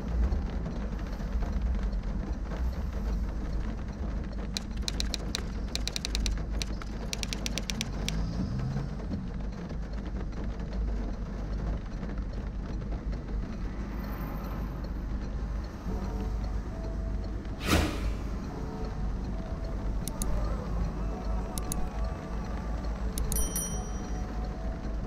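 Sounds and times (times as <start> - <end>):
sharp ticks: 4.6 - 8.4, 20.0 - 20.4, 21.6 - 22.0, 23.2 - 23.8.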